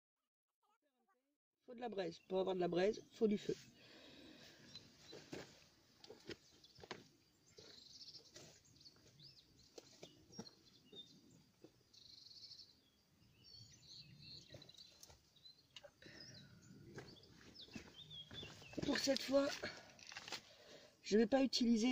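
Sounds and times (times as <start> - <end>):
birds chirping: 1.8 - 21.9.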